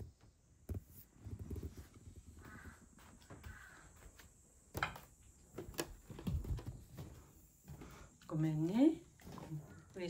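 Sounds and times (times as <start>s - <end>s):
distant crow cawing: 2.4s - 4.2s
soft footsteps on tatami floor: 5.4s - 10.0s.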